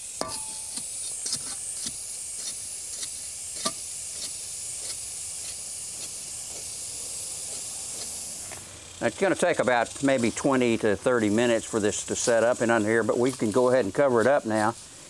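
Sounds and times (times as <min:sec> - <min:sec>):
steady hiss: 0:00.0 - 0:15.0
metal rod tapping in wet concrete: 0:00.2 - 0:02.0.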